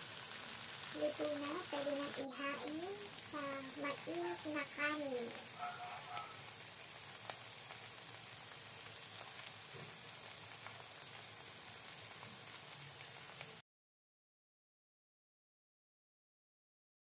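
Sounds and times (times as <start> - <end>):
oil sizzling in a pan: 0.0 - 13.6.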